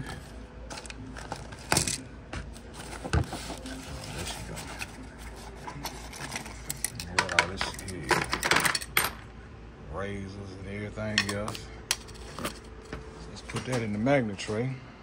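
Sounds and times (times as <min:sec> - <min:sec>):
metal parts clinking in tray: 0:00.7 - 0:02.0, 0:05.8 - 0:09.2.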